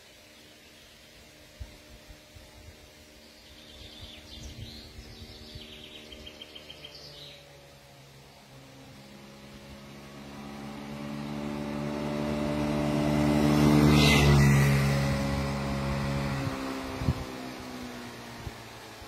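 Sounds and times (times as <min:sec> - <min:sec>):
small birds chirping and trilling: 0:00.0 - 0:10.9
vehicle engine approaching: 0:00.2 - 0:19.0.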